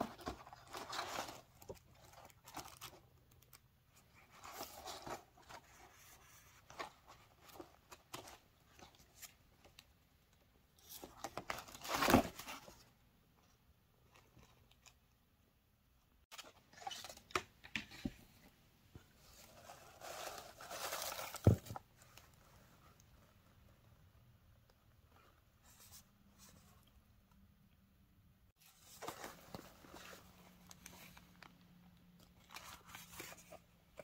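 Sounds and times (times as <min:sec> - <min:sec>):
paper and cards rustling: 0:00.0 - 0:09.8, 0:19.1 - 0:22.5, 0:28.6 - 0:34.0.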